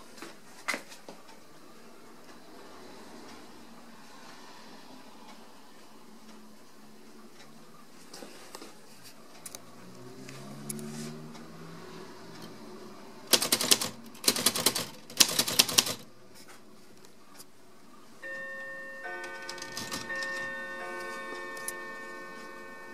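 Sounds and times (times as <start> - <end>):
typewriter key strikes: 13.3 - 16.0, 19.2 - 20.4
typewriter clicks: 13.3 - 16.1, 19.2 - 20.5.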